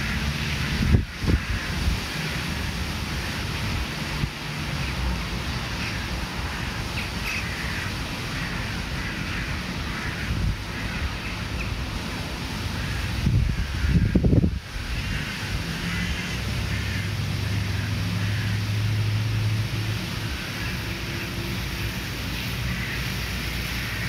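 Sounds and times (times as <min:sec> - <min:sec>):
wind buffeting microphone: 0:00.0 - 0:05.8, 0:07.8 - 0:12.0, 0:12.8 - 0:16.6
distant crows calling: 0:00.0 - 0:24.0.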